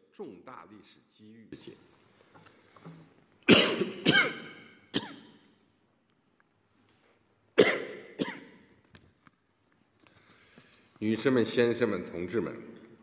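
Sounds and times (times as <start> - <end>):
man coughing into microphone: 3.5 - 5.3, 7.6 - 8.6.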